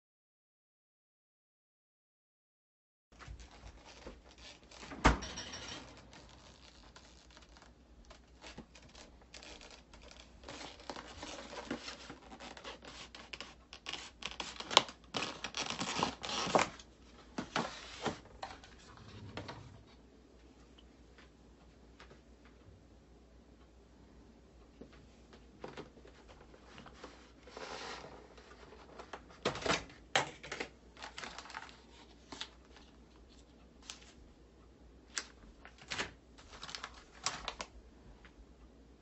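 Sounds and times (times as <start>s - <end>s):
plastic packaging crinkling: 3.2s - 4.9s, 5.8s - 16.9s, 30.3s - 33.0s, 35.2s - 37.7s.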